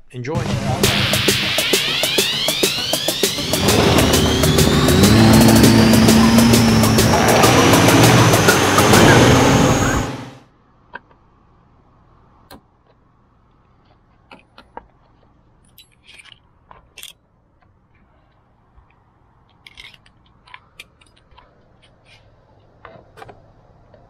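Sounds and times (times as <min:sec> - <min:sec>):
screwdriver clicks and scrapes: 0:19.5 - 0:22.2.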